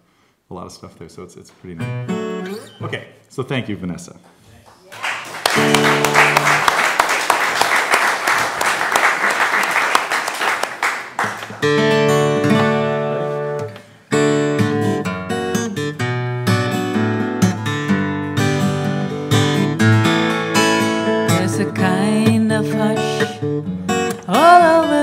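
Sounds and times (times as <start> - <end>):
acoustic guitar plucked chords: 1.8 - 3.1, 5.6 - 6.6, 11.6 - 25.0
applause: 4.6 - 11.9.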